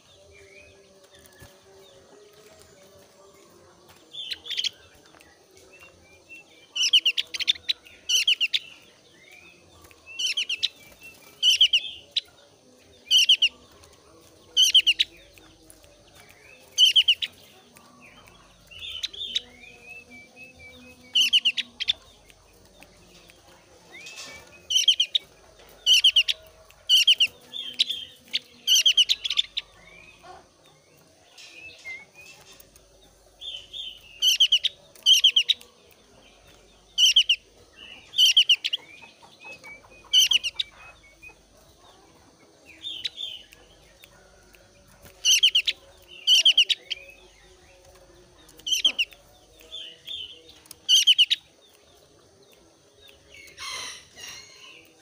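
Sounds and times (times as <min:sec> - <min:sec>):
bird chattering trills: 0:16.7 - 0:17.4, 0:23.9 - 0:30.2, 0:37.0 - 0:41.4, 0:45.2 - 0:47.2, 0:48.6 - 0:51.4.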